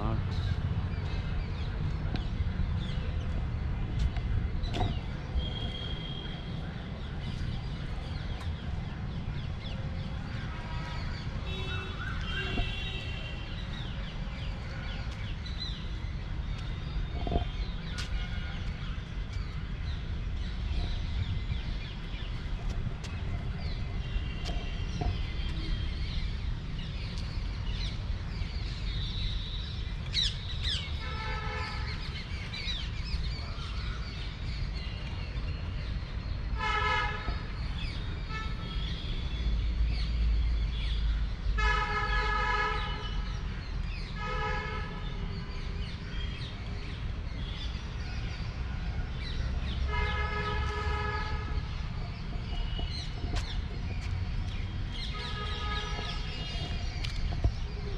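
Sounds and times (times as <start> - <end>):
birds chirping: 0.0 - 41.6, 49.1 - 57.9
vehicle horns honking: 10.5 - 13.6, 38.3 - 39.0, 49.9 - 51.7, 55.1 - 56.6.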